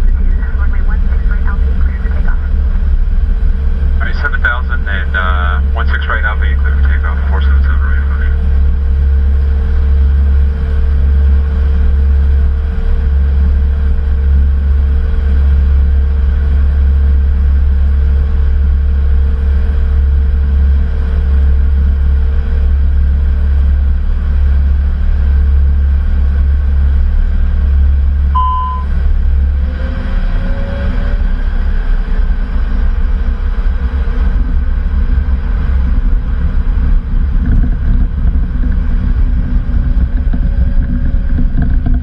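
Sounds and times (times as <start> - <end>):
jet engines rumbling: 0.0 - 42.0
short electronic chime: 28.4 - 28.9.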